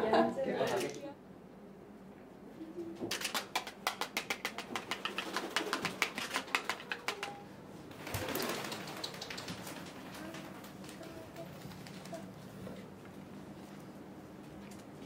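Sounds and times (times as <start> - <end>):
rustling noise: 7.8 - 15.0.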